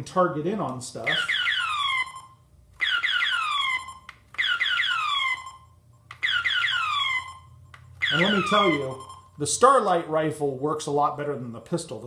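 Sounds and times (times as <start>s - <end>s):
electronic laser zaps and beep: 1.1s - 5.6s, 6.3s - 9.3s.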